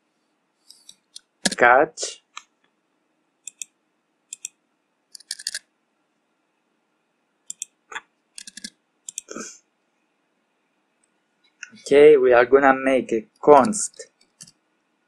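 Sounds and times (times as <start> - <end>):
keyboard keys clicking: 8.4 - 9.3.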